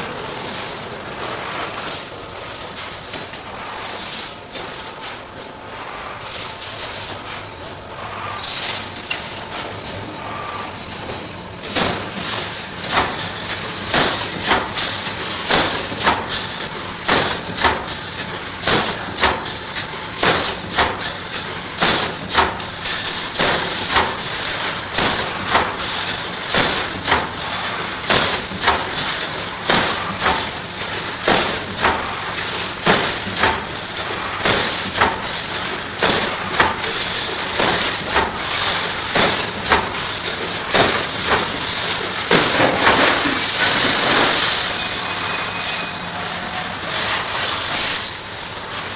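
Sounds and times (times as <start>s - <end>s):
machine high hiss: 8.0s - 9.0s, 31.3s - 48.5s
welding machine knocking: 11.0s - 44.8s.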